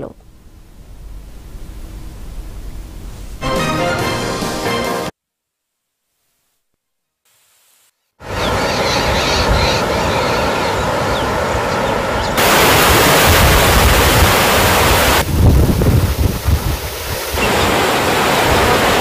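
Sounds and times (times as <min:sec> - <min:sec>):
floodwater rushing: 0:08.2 - 0:19.0
wind gusting on microphone: 0:08.2 - 0:19.0.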